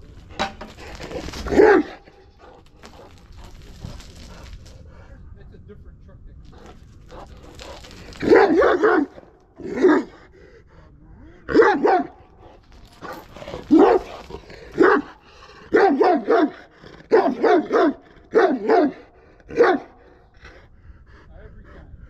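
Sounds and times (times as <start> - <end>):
dog barking: 1.5 - 3.5, 7.1 - 10.2, 11.5 - 12.3, 13.6 - 14.2, 14.8 - 20.2.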